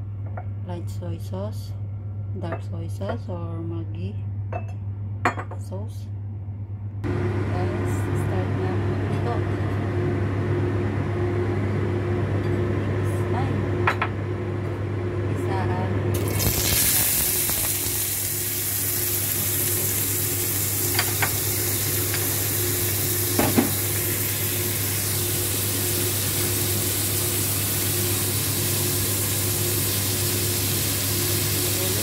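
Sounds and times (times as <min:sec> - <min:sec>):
steady low hum: 0:00.0 - 0:32.0
onion sizzling in hot oil: 0:16.2 - 0:32.0.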